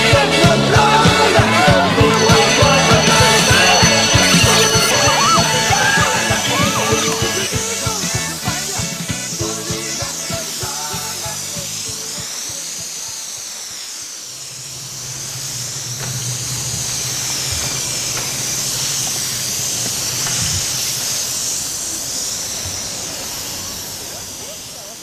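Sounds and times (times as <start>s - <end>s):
rock music: 0.0s - 12.1s
low hum: 0.0s - 24.6s
sweeping hiss: 0.0s - 25.0s.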